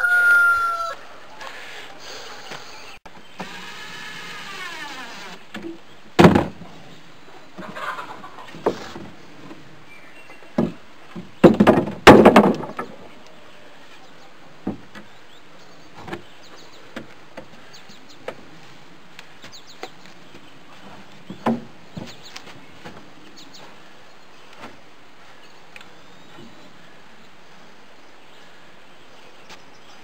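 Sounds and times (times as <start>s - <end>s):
wooden boards knocking: 6.2s - 6.6s, 10.5s - 13.0s.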